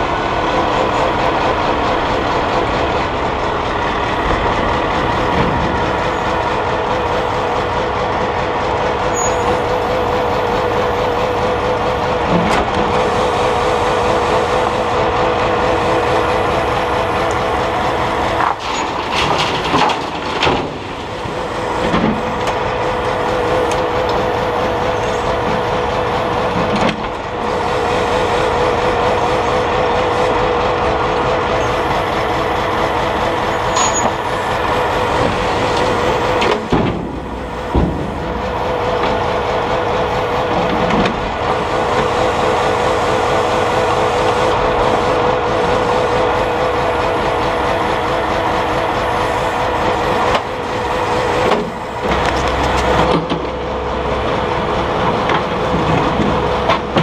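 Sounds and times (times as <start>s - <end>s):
lorry engine and hydraulic crane: 0.0s - 57.0s
wavering whine: 31.3s - 36.6s.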